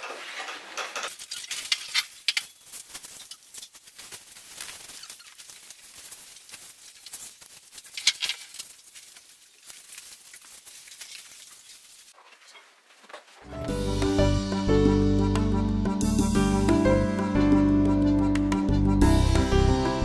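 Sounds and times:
bedding rustling: 9.6 - 13.6
soft footsteps on mats: 12.2 - 13.6.

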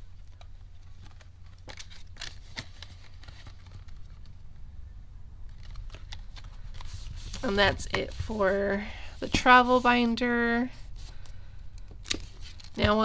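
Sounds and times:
paper banknotes rustling: 0.0 - 4.3, 5.5 - 13.0
steady low hum: 0.0 - 13.0.

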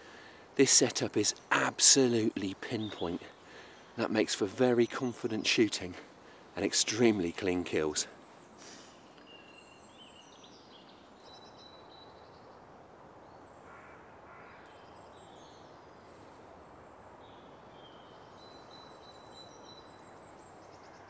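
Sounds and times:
songbirds chirping and trilling: 0.0 - 21.0
harsh crow calls: 13.6 - 14.8.

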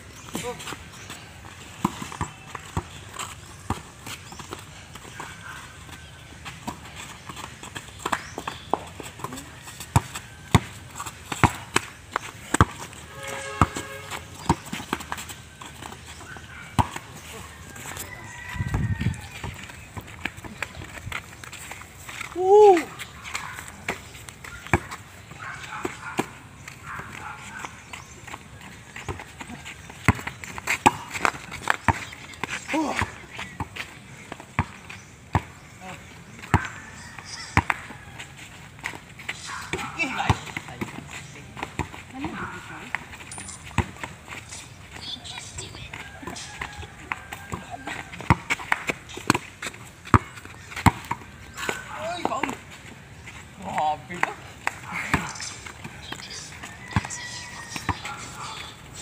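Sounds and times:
players' footsteps: 0.0 - 59.0
basketball bouncing on dirt: 0.1 - 59.0
basketball bouncing: 6.5 - 13.0, 13.6 - 16.0, 16.6 - 17.2, 23.8 - 25.0, 29.9 - 32.1, 32.9 - 35.5, 37.6 - 37.9, 39.7 - 41.0, 43.7 - 44.2, 45.9 - 52.6.

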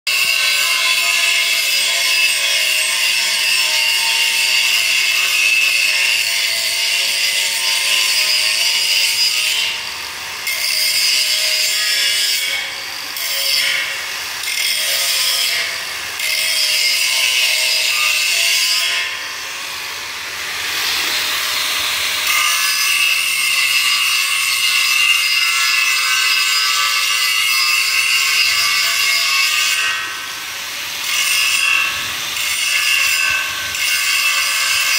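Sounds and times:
angle grinder grinding steel: 0.1 - 34.9.

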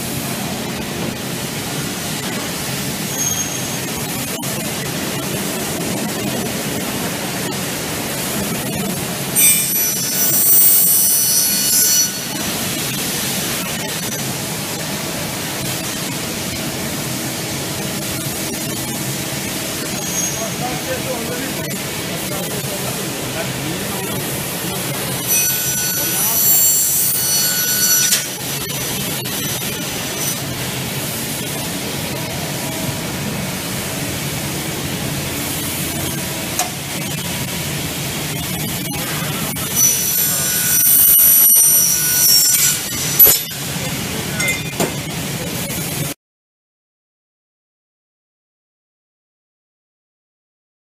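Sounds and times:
cutting saw whirring: 25.1 - 28.6, 38.9 - 43.9.

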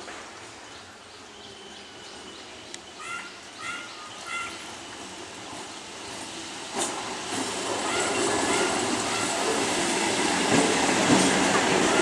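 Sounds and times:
electric train rumble: 0.0 - 12.0
bird calling: 0.8 - 5.1.

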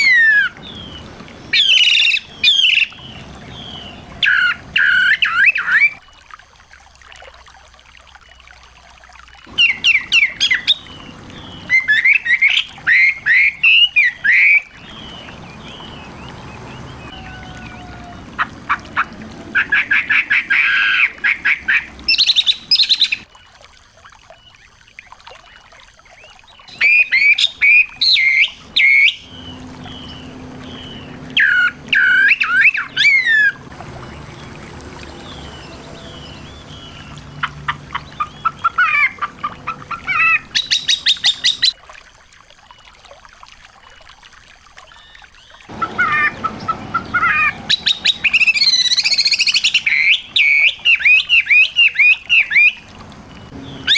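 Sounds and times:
songbirds chirping and trilling: 0.0 - 6.2, 9.5 - 23.6, 24.2 - 41.8, 44.8 - 53.9.

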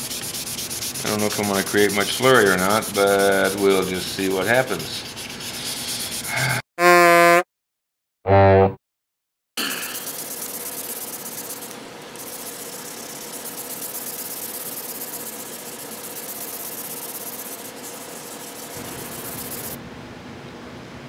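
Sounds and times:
sandpaper rubbing on wood: 0.0 - 6.4, 9.8 - 19.8.

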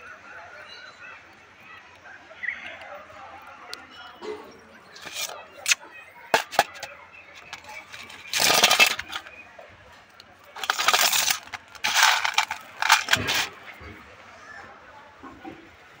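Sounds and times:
hands rustling through grain: 10.6 - 13.5.

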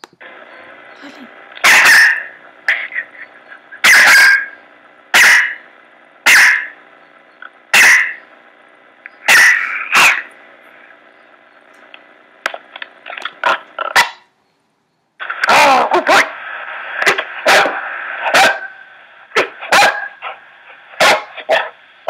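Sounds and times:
dog barking: 1.6 - 2.3, 3.8 - 4.6, 5.2 - 5.6, 6.3 - 6.8, 7.8 - 8.2, 9.3 - 10.3, 13.5 - 14.3, 17.4 - 18.8, 19.4 - 20.4, 21.0 - 21.8.

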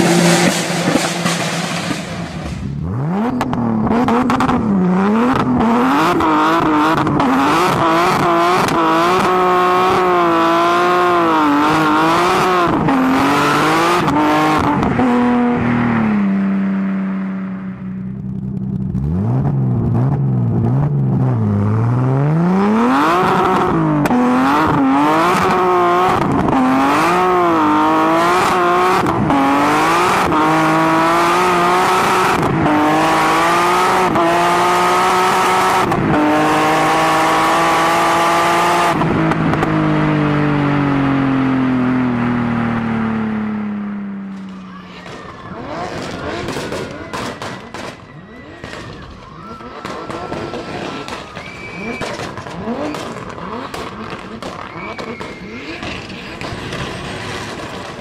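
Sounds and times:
car engine revving: 0.0 - 48.8, 49.7 - 58.0.

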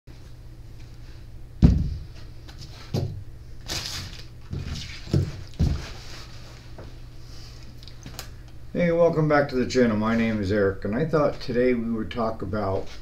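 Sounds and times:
steady low hum: 0.1 - 13.0
plastic wrapping rustling: 3.6 - 6.6.

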